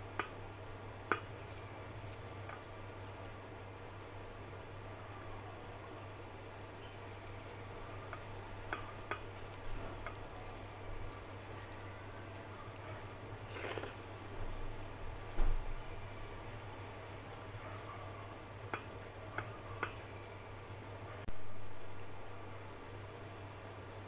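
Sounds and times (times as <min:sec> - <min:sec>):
fingers squishing wet food: 0:01.0 - 0:14.0, 0:18.6 - 0:20.3
small clicks and taps: 0:01.1 - 0:01.3.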